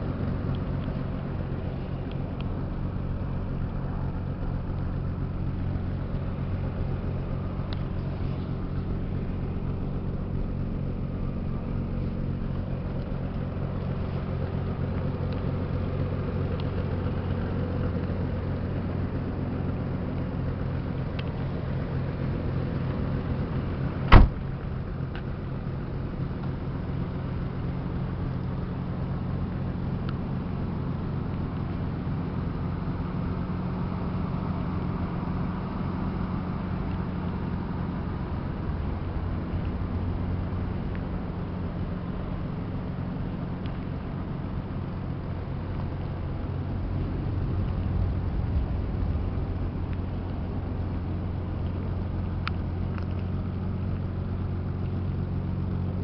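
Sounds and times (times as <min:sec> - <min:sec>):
car engine idling: 0:00.0 - 0:56.0
car door slamming: 0:23.9 - 0:24.7.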